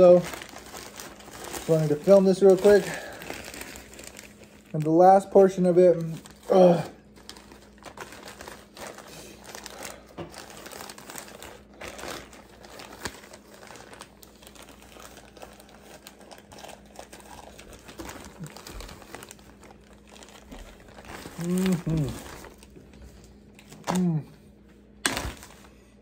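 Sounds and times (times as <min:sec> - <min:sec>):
plastic bag crinkling: 0:00.0 - 0:24.2, 0:25.0 - 0:25.8.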